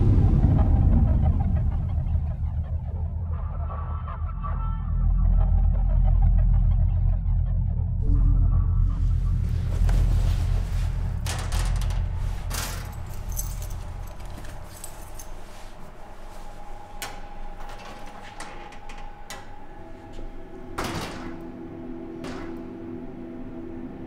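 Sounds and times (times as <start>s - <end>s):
low rumble: 0.0s - 16.6s
metal locker door and latch clicking: 11.2s - 13.8s, 20.8s - 21.5s, 22.2s - 22.7s.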